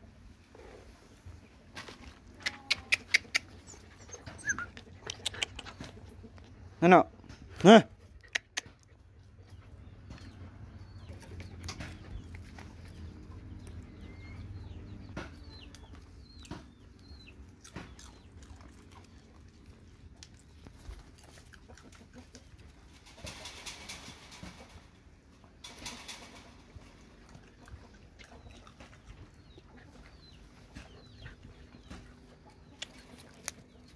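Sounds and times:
chicken clucks: 0.6 - 7.4, 8.0 - 33.9
bird chirps: 9.5 - 18.4.

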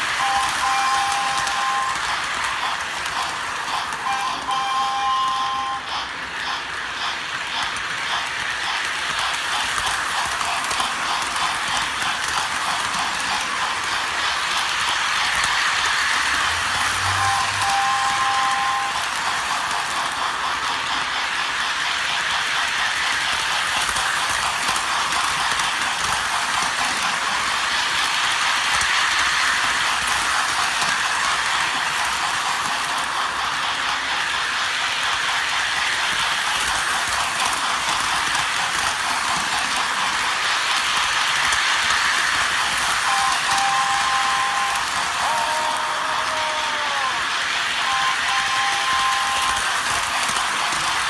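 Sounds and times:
model train running on track: 0.0 - 51.0
two-note train whistle: 0.1 - 2.1, 4.0 - 5.9, 16.5 - 19.2, 43.0 - 47.2, 47.8 - 49.7.

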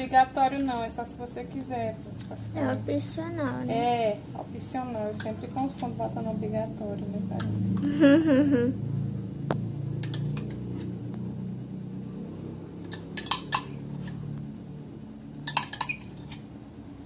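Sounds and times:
spoon clinking against glass cup: 12.8 - 14.2, 15.4 - 16.4.

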